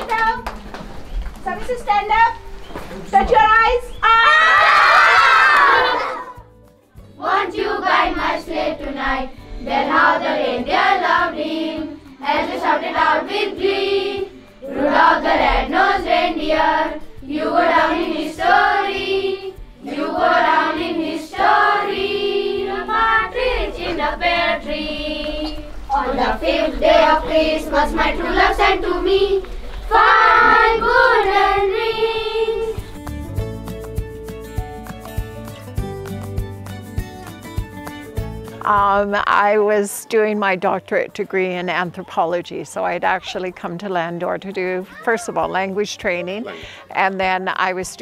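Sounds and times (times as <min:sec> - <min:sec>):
children singing in chorus: 0:07.2 - 0:32.8.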